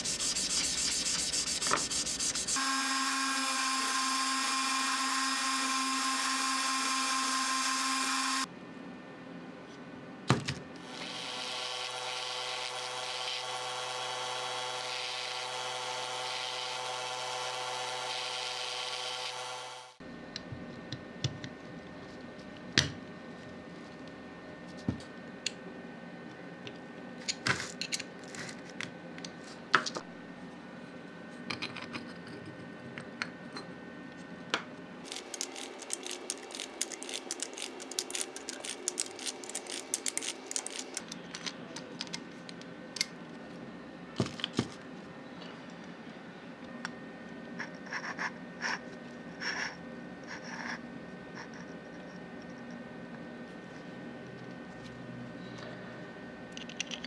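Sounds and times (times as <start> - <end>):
faint background hum: 0.0 - 19.1, 19.8 - 57.0
metal parts clicking and scraping: 35.1 - 42.2.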